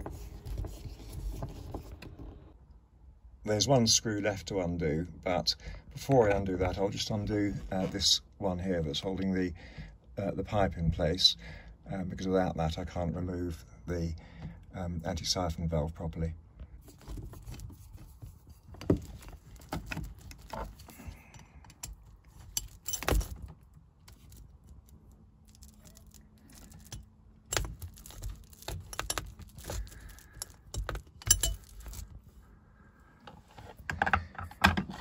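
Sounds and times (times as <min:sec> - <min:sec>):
screwdriver clicking on metal screws: 0:25.5 - 0:32.0.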